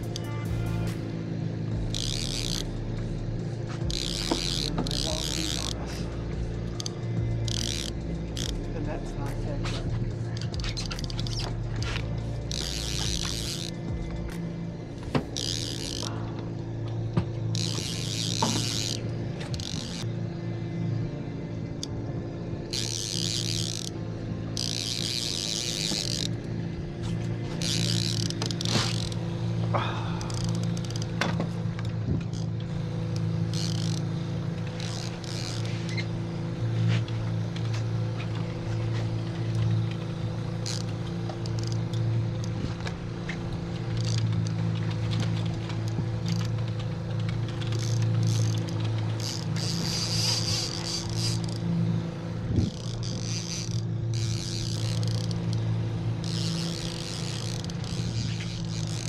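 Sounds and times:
boat engine humming: 0.0s - 59.0s.

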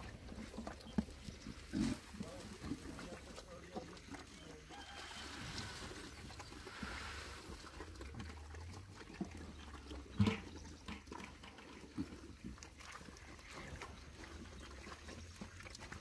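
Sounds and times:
pigs grunting and eating: 0.0s - 16.0s.

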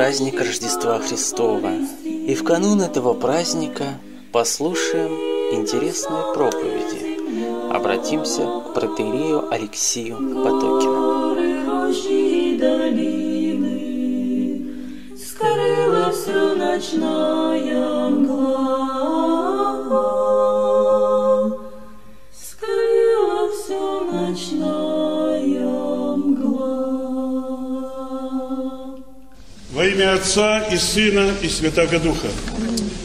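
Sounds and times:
choir singing a cappella: 0.0s - 33.0s.

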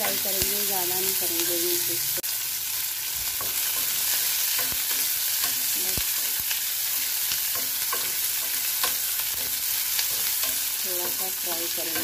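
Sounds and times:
vegetables sizzling in hot oil: 0.0s - 12.0s
metal spoon scraping a pan: 3.3s - 12.0s.

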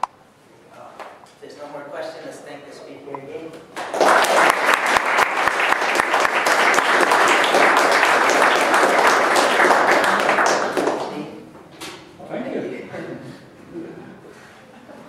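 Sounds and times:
audience applauding: 3.7s - 11.3s.

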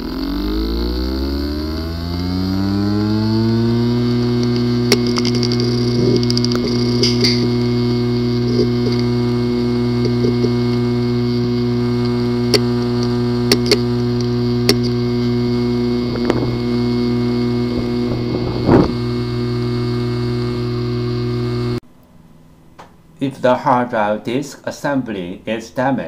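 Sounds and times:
hard drive humming: 0.0s - 21.8s
loud long hard drive noises: 0.0s - 21.8s
hard drive clicking: 3.4s - 21.8s.

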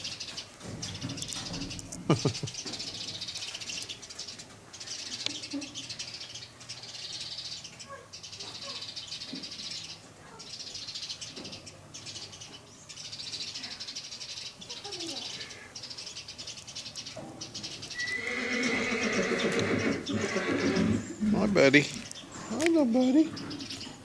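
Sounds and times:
horse whinnying: 17.9s - 21.5s.

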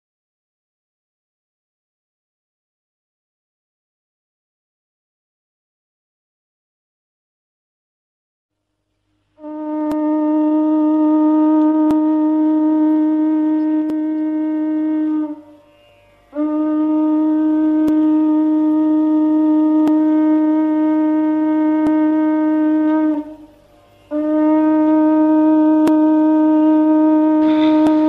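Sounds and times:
conch shell blasts: 9.4s - 28.0s.

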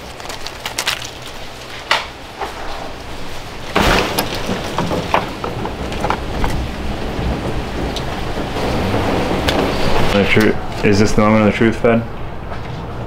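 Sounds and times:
plastic bag crinkling: 0.0s - 1.9s.

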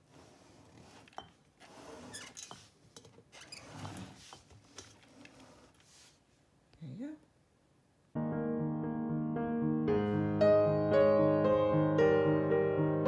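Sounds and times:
tray scraping on wooden table: 0.0s - 6.2s.

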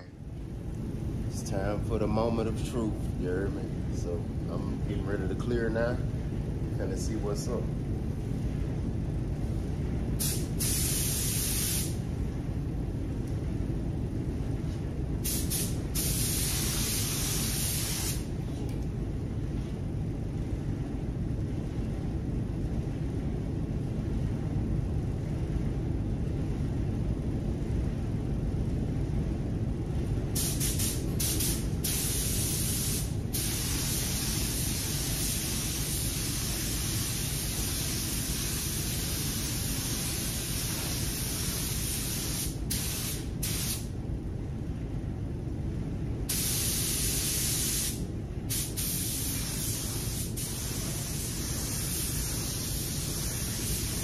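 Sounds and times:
steady low rumble: 0.0s - 54.0s
spray gun hissing: 10.2s - 12.0s, 15.2s - 18.3s, 30.4s - 43.9s, 46.3s - 54.0s.

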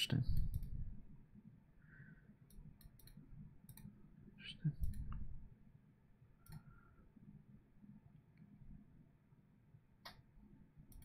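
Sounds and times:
faint low mumble: 0.2s - 5.7s
computer mouse clicking: 0.3s - 0.8s, 2.4s - 4.0s, 4.8s - 5.2s, 6.4s - 6.7s.

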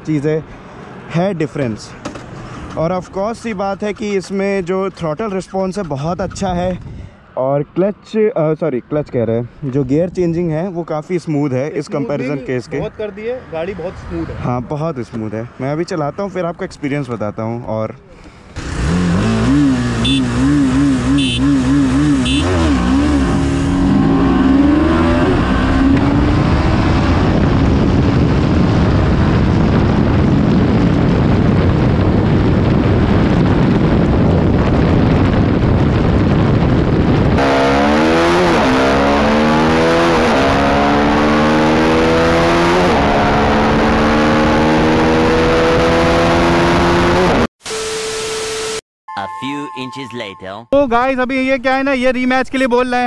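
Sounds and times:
wind rush on microphone: 6.0s - 7.2s, 23.1s - 38.8s
motorcycle engine accelerating: 18.6s - 47.5s.

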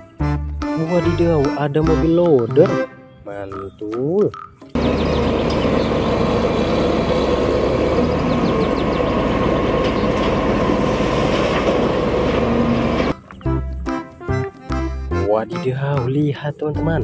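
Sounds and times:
heavy diesel engines running: 4.8s - 13.4s.

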